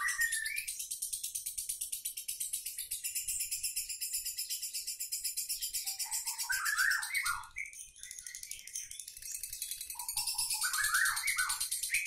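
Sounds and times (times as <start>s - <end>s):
bird chattering trill: 0.0s - 0.6s, 9.8s - 12.0s.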